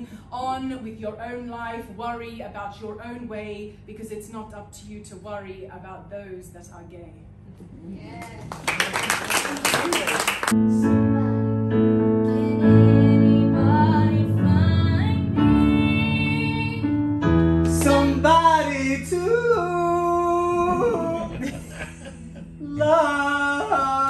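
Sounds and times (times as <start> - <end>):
digital piano chords: 10.5 - 24.0
woman singing: 12.2 - 16.9.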